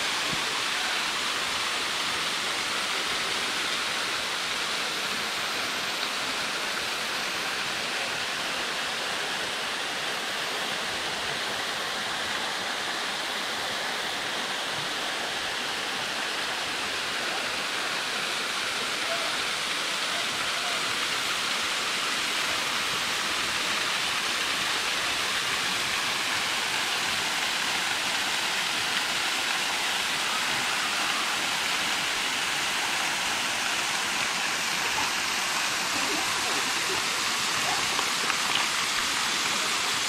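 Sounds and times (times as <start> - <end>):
waterfall rushing: 0.0 - 40.0.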